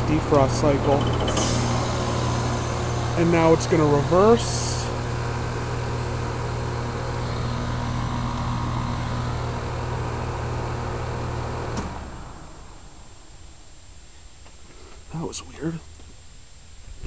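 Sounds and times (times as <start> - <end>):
heat pump compressor hum: 0.0 - 13.3.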